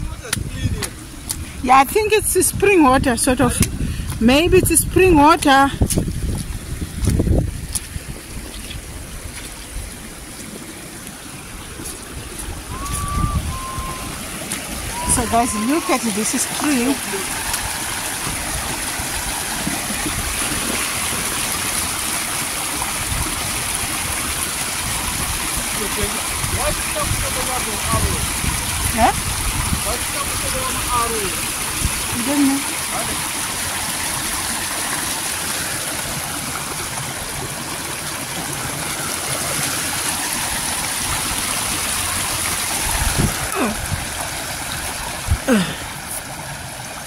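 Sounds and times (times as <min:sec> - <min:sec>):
stream running over rocks: 0:00.0 - 0:47.0.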